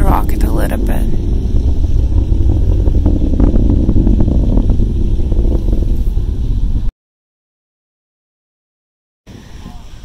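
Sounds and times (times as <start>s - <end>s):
distant rocket rumble: 0.0s - 6.9s.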